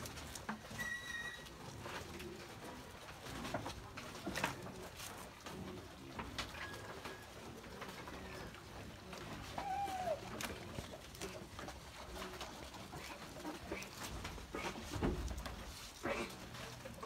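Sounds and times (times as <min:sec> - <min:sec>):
leaves rustling: 0:07.7 - 0:17.0
bird cooing: 0:07.9 - 0:10.9.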